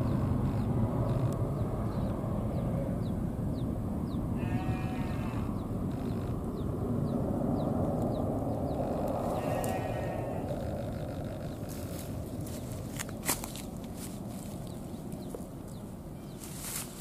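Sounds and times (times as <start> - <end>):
distant jet airliner rumble: 0.0 - 16.5
farm animal bleating: 4.4 - 6.4, 8.9 - 12.6.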